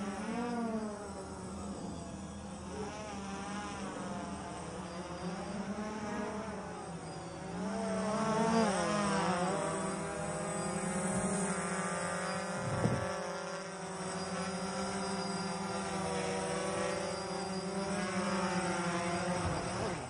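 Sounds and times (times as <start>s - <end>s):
drone propellers buzzing: 0.0s - 20.0s.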